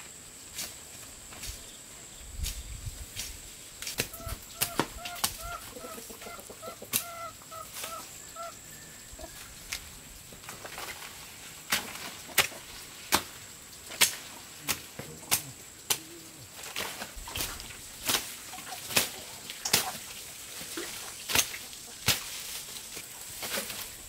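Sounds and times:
plant stalks snapping: 0:03.2 - 0:05.5, 0:13.9 - 0:20.0, 0:21.3 - 0:24.0.

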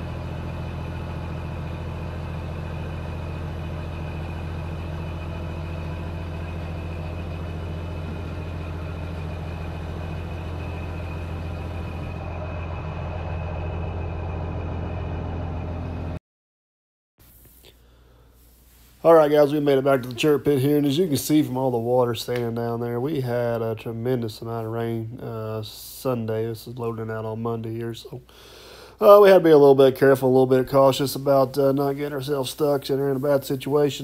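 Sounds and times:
hydraulic hoist hum: 0:00.0 - 0:16.2
truck diesel engine idling: 0:00.0 - 0:16.2.

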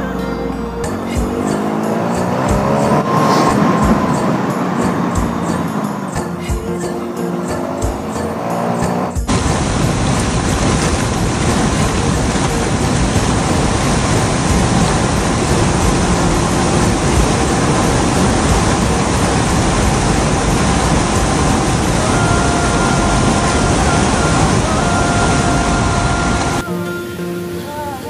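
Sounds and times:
vehicle running: 0:00.0 - 0:26.6
wind rushing on microphone: 0:09.0 - 0:26.6.

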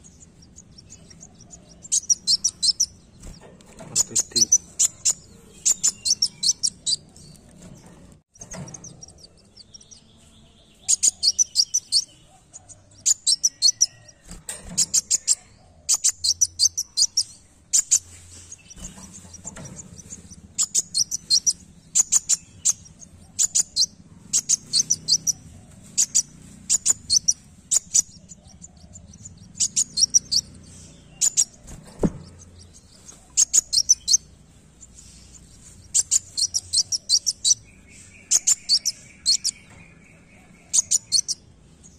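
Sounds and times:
sunbird singing high-pitched notes: 0:00.0 - 0:03.1, 0:04.0 - 0:07.4, 0:09.2 - 0:12.2, 0:20.6 - 0:28.4, 0:32.6 - 0:41.5.

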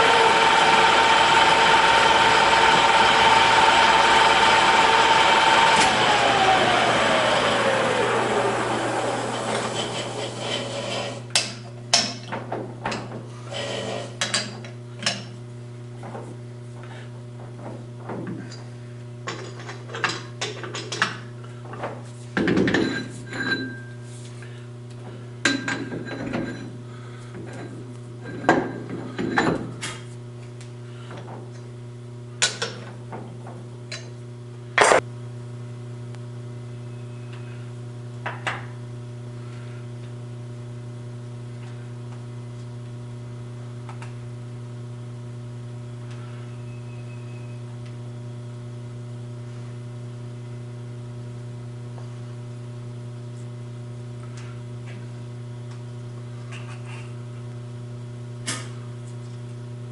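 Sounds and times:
mains hum: 0:11.3 - 0:59.9
metal clanks and knocks: 0:21.8 - 0:23.8.

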